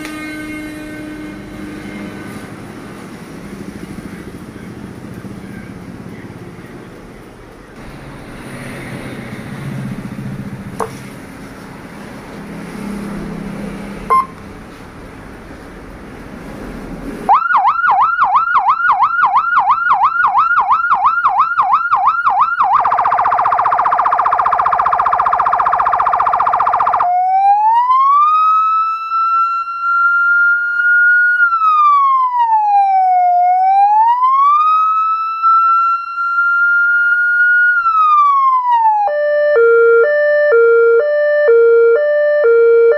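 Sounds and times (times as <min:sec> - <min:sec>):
electronic siren: 0:00.0 - 0:02.5, 0:14.0 - 0:14.4, 0:17.3 - 0:42.9.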